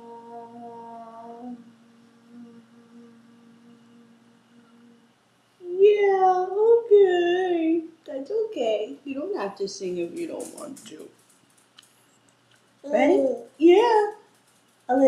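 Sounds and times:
woman singing: 0.0 - 5.0
woman humming: 0.0 - 7.9.

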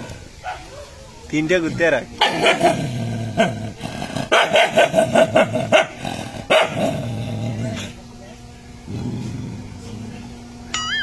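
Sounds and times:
dog barking: 0.4 - 1.0, 2.2 - 2.8, 4.3 - 6.9
dog growling: 1.7 - 8.0, 8.8 - 10.4.

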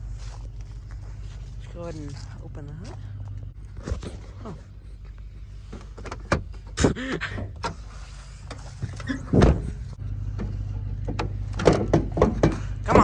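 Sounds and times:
steady low hum: 0.0 - 13.0
heavy thunk: 9.2 - 9.8.

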